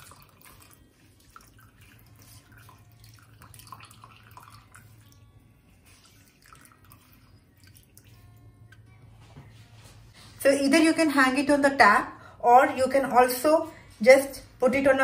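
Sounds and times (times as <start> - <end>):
liquid trickling and dripping: 0.0 - 8.8
low steady hum: 0.0 - 10.5.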